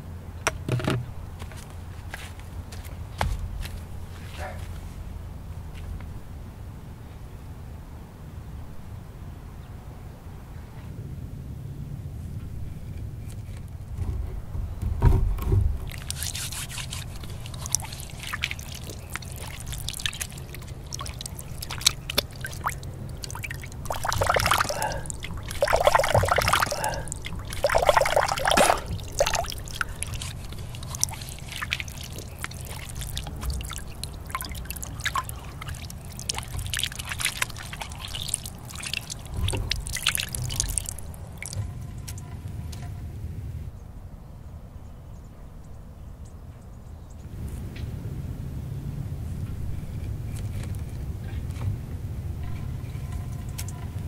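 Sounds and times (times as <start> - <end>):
water trickling from a spout: 15.7 - 41.8
water drips: 15.7 - 42.2
water splashing into hands: 15.8 - 41.7.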